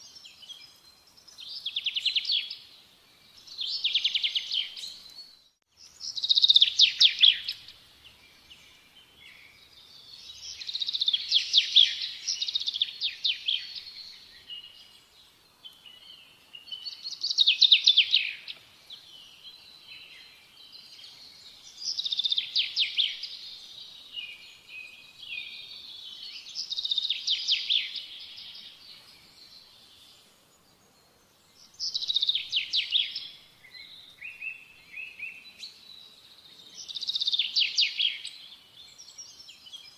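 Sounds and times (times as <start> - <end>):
songbird trills and chirps: 0.0 - 39.9.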